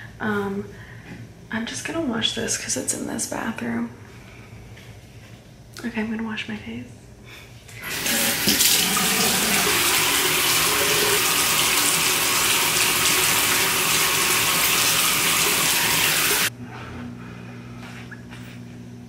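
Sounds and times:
faucet water running: 7.8 - 16.5.

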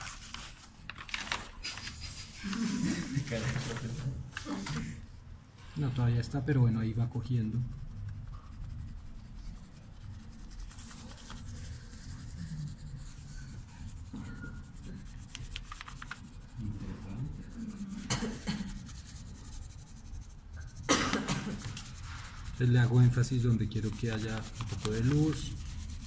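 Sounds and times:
pencil scratching on paper: 6.5 - 26.0.

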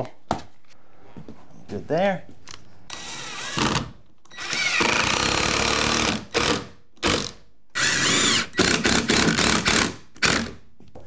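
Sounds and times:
impact driver driving screws: 2.9 - 10.6.

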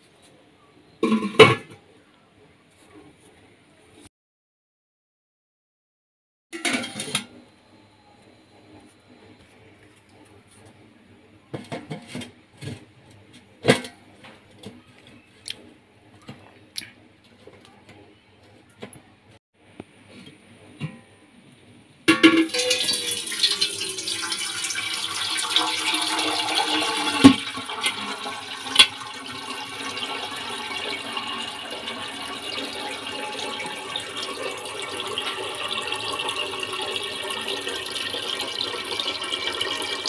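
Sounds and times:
water pouring into a steel pot: 22.4 - 40.0.

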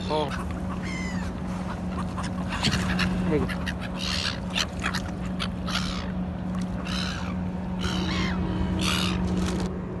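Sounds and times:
seagulls calling: 0.0 - 9.7
steady low hum: 0.0 - 10.0.

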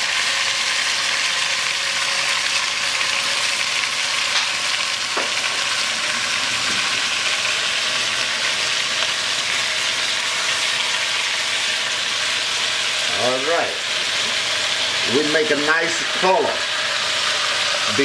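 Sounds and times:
meat sizzling in hot oil: 0.0 - 18.0.

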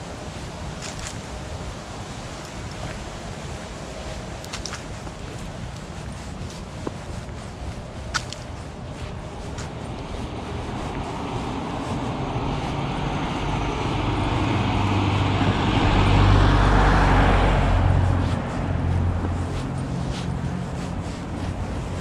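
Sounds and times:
car driving past: 12.0 - 19.3.

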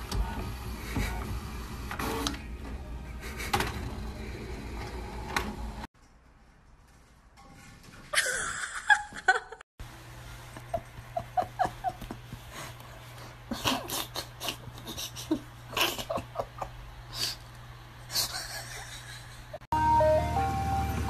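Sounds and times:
person laughing: 8.2 - 9.6, 10.6 - 12.7, 13.5 - 17.4, 18.1 - 19.6.

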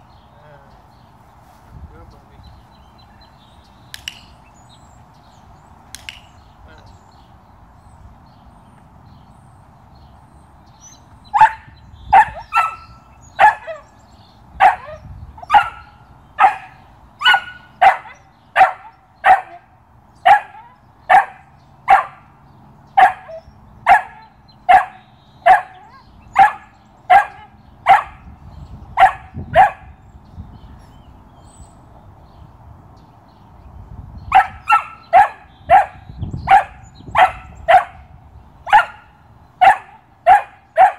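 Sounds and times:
puppy barking: 11.4 - 13.9, 14.6 - 22.2, 23.0 - 28.2, 29.0 - 29.9, 34.3 - 38.0, 38.7 - 40.9.

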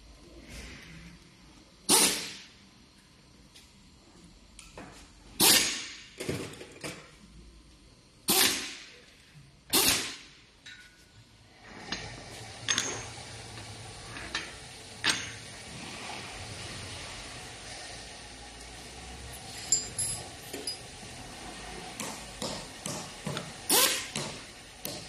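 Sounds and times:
metal parts clanking on workbench: 11.8 - 13.2, 14.2 - 15.4, 19.4 - 20.9.

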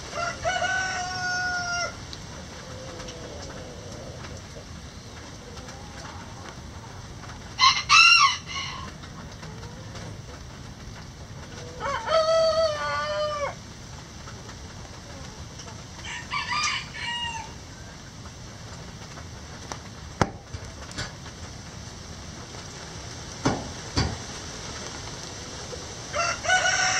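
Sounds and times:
roosters crowing: 0.0 - 10.3, 11.5 - 13.7, 15.9 - 18.0, 25.3 - 26.9
rain hiss: 0.0 - 26.9.

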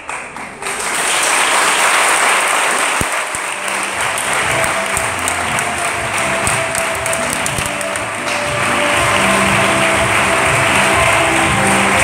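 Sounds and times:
audience applauding: 0.0 - 12.0
quiet music: 3.7 - 12.0.

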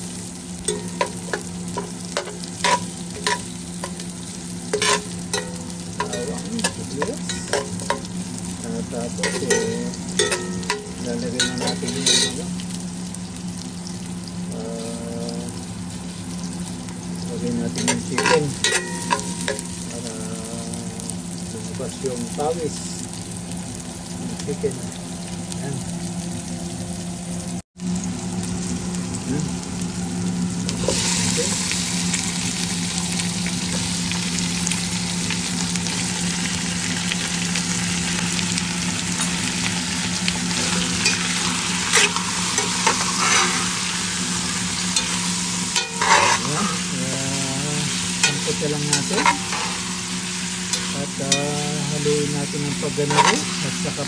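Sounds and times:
steady low hum: 0.0 - 24.9
food sizzling in hot oil: 0.0 - 54.0
utensil scraping a pot: 0.7 - 4.1, 4.7 - 8.2, 9.2 - 12.4, 17.7 - 19.8, 40.5 - 47.1, 47.8 - 52.0, 53.0 - 53.8.

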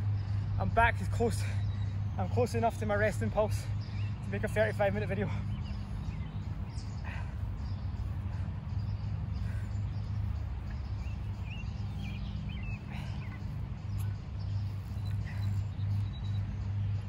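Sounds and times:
steady low hum: 0.0 - 17.0
faint bird chirps: 5.3 - 16.7.

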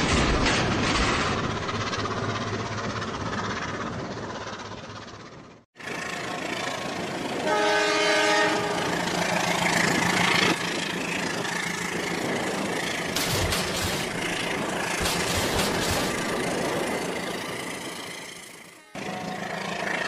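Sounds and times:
toy train horn: 7.4 - 9.1
toy trains whirring: 8.8 - 20.0.

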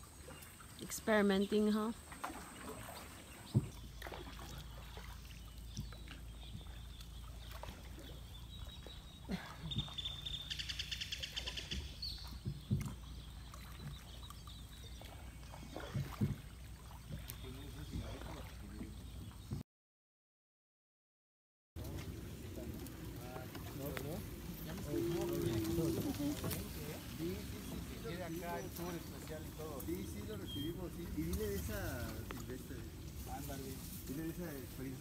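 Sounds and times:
paddles stroking through water: 0.0 - 19.6, 21.8 - 35.0
paddle knocking against hull: 2.1 - 19.6.

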